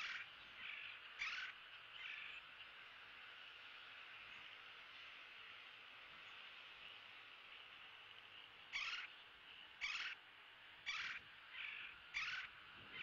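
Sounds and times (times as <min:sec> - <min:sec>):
bird calling harshly: 0:00.0 - 0:02.4, 0:08.7 - 0:09.1, 0:09.8 - 0:10.2, 0:10.8 - 0:13.0.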